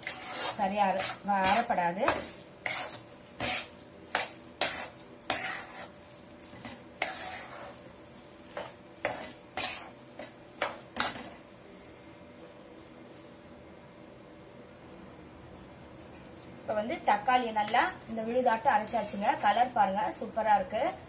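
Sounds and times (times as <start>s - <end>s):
metal spatula scraping a pan: 0.0s - 11.4s.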